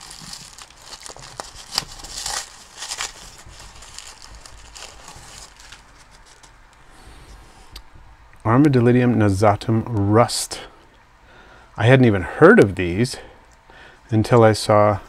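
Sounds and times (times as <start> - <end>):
paper wrapping crinkling and tearing: 0.0 - 6.6.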